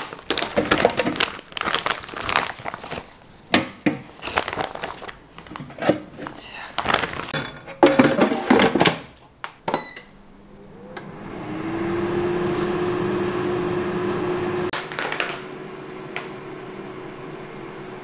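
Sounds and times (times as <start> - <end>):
short beep: 9.7 - 10.2
air fryer fan whirring: 9.8 - 18.0.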